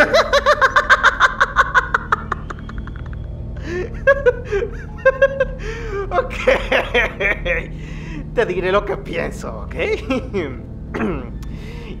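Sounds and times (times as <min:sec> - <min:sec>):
man laughing: 0:00.0 - 0:07.8, 0:09.8 - 0:10.6.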